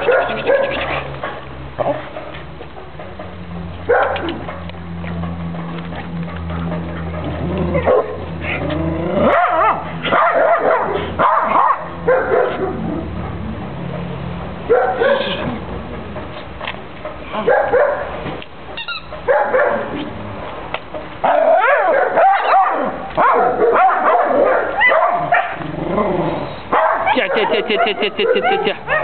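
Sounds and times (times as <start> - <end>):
dog barking and yipping: 0.0 - 1.1, 3.9 - 4.7, 7.8 - 8.2, 9.3 - 13.4, 14.7 - 15.4, 17.4 - 18.1, 18.9 - 20.0, 21.2 - 25.6, 26.7 - 29.0.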